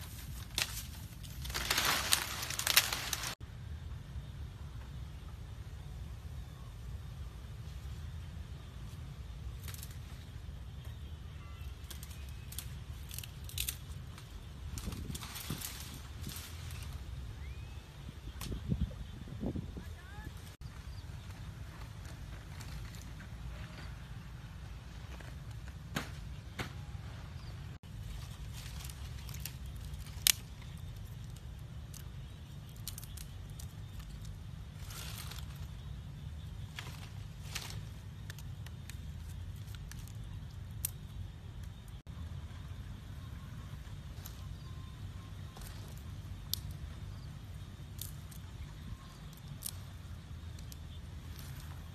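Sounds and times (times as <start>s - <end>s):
dry palm fronds crackling: 0.0s - 3.4s, 8.7s - 18.6s, 19.8s - 51.9s
faint chirp: 5.0s - 13.0s, 16.4s - 21.8s, 26.3s - 51.9s.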